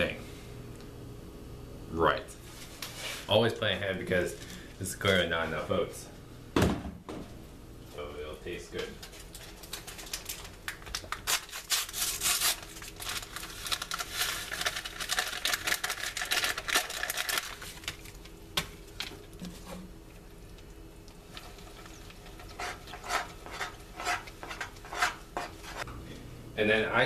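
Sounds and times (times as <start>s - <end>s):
spoon scraping and stirring: 21.3s - 25.9s.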